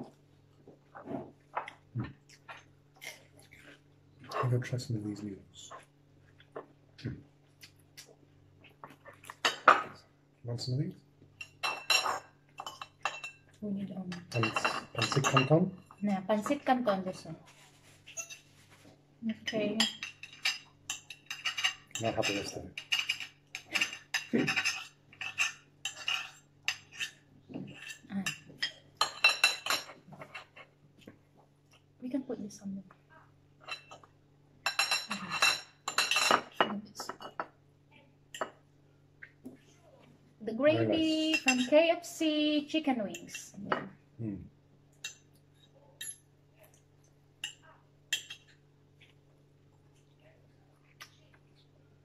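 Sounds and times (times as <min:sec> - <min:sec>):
faint low hum: 0:00.0 - 0:52.0
forks clinking on ceramic plates: 0:11.4 - 0:13.5, 0:14.1 - 0:16.0, 0:18.1 - 0:18.5, 0:19.4 - 0:30.6, 0:33.6 - 0:37.5, 0:40.8 - 0:41.8, 0:43.1 - 0:43.8, 0:47.4 - 0:48.6.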